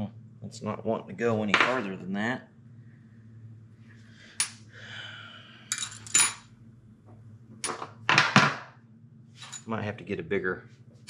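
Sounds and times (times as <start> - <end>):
low steady hum: 0.0 - 11.0
metal tools clinking on metal: 5.7 - 6.4.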